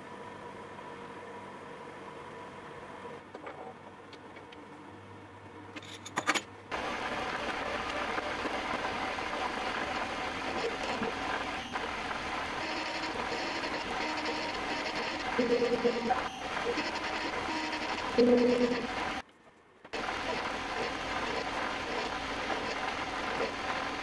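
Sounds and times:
loud steady machine noise: 0:06.7 - 0:19.2, 0:19.9 - 0:24.0
machine motor hum: 0:06.7 - 0:19.2, 0:19.9 - 0:24.0.

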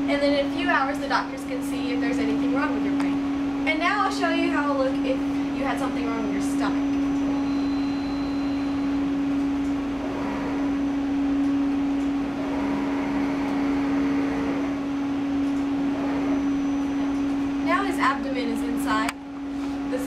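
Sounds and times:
faint motor whir: 0:00.0 - 0:20.0
scanner electrical hum: 0:00.0 - 0:20.0.

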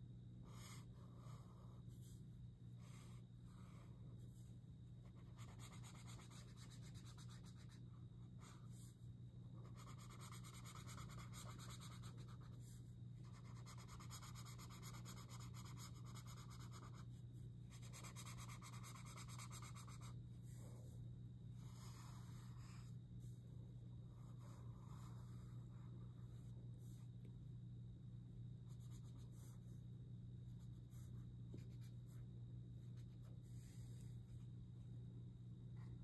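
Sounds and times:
faint low hum: 0:00.0 - 0:36.0.

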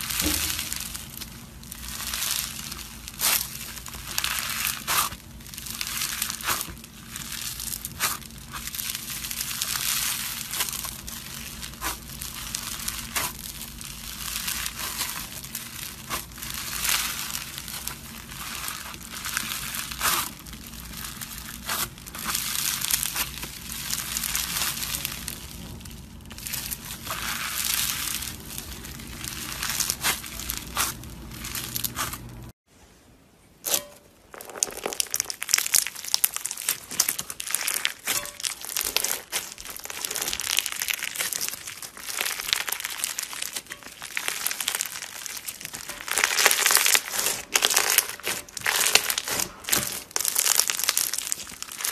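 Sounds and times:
slime crackling and popping: 0:00.0 - 0:32.5, 0:33.6 - 0:51.9
steady low hum: 0:00.0 - 0:32.6.

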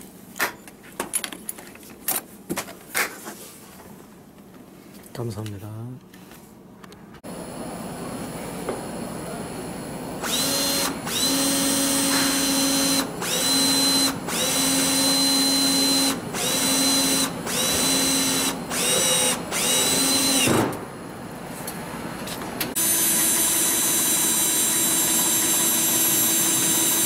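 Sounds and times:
cordless drill whining: 0:10.2 - 0:20.5, 0:22.8 - 0:27.0.

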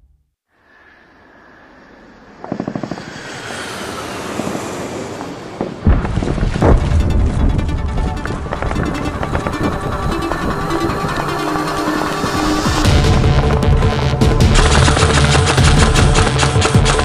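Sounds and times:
heavy low booms: 0:05.8 - 0:11.4, 0:12.3 - 0:16.2
rapid pulsing chop: 0:07.8 - 0:17.0.

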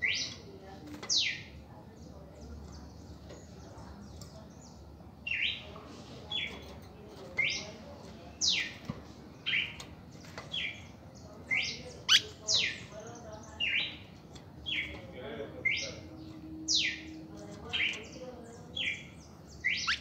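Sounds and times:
bird singing whistled notes: 0:15.6 - 0:18.2, 0:18.8 - 0:20.0.

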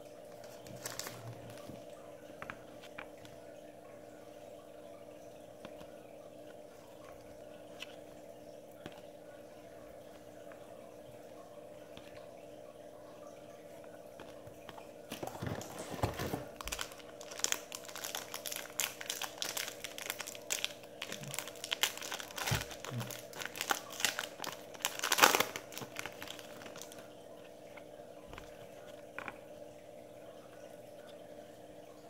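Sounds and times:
wrapper crinkling as torn open: 0:00.4 - 0:01.6, 0:15.1 - 0:27.0
cards rustling and clicking: 0:00.4 - 0:01.8, 0:15.1 - 0:27.0.

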